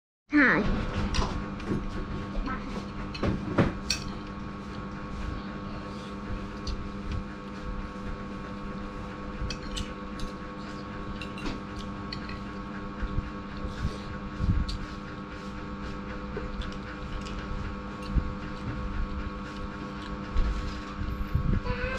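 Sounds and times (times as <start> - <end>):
steady hum: 0.3 - 21.9
eating and chewing: 3.8 - 21.1.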